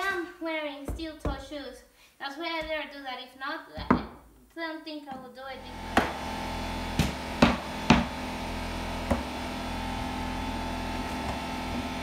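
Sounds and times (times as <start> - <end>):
air compressor humming: 5.6 - 12.0
mallet striking flooring stapler: 5.9 - 8.3, 9.0 - 12.0.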